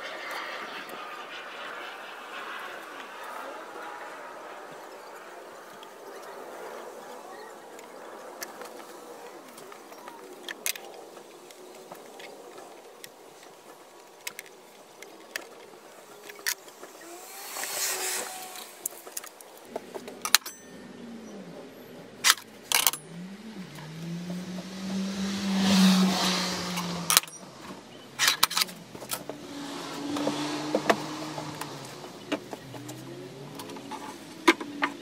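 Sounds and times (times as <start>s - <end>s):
low engine hum: 15.7s - 35.0s.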